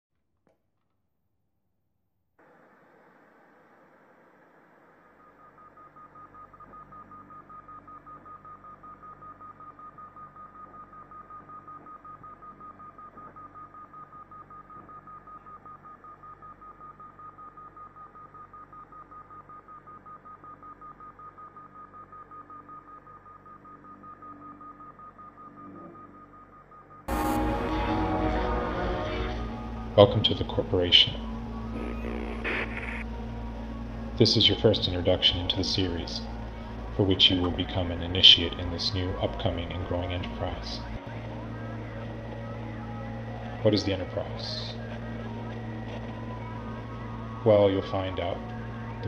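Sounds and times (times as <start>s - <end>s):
low electronic hum: 2.4s - 49.0s
pulsing high-pitched electronic tone: 27.1s - 29.8s, 31.7s - 33.2s.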